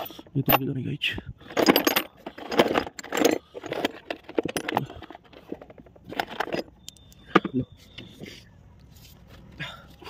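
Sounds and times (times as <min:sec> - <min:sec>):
tools clinking in metal toolbox: 0:01.5 - 0:07.6.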